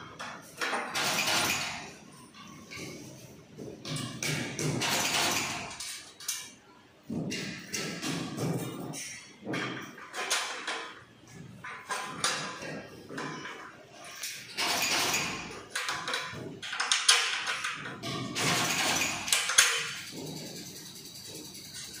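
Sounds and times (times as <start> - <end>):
metal clinks and scrapes: 0.3 - 22.0.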